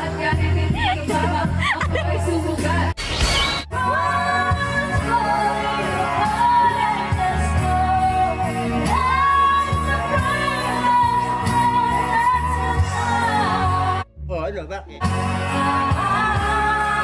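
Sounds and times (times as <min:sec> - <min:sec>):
woman singing karaoke: 0:00.0 - 0:03.0, 0:03.7 - 0:14.0, 0:15.1 - 0:17.0
pop backing track: 0:03.7 - 0:17.0.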